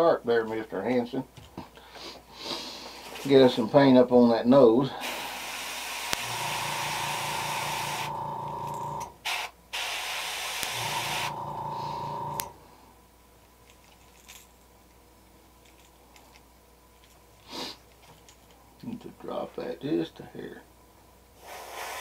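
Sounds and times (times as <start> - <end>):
airbrush spraying hiss: 5.0 - 8.1, 9.3 - 12.0, 21.4 - 22.0
airbrush hum: 5.0 - 9.0, 9.8 - 12.6.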